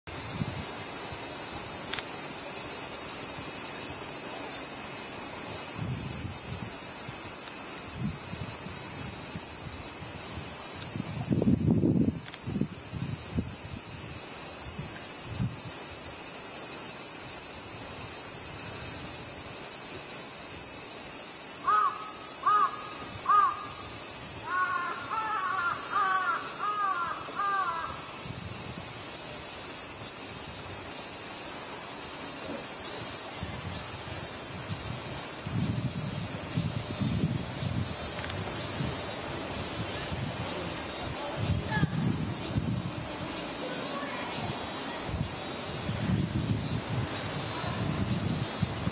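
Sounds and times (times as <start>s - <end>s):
insects droning: 0.1s - 48.9s
crow cawing: 21.6s - 23.8s, 24.4s - 28.1s.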